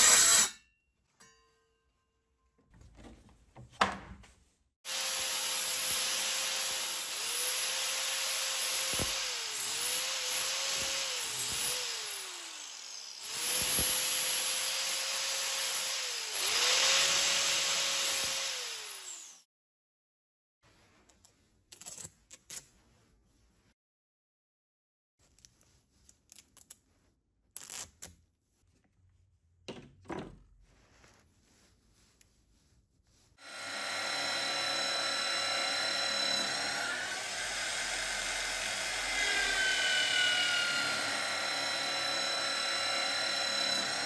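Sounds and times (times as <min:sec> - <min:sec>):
power tool motor running: 0:04.9 - 0:19.4, 0:33.4 - 0:44.0.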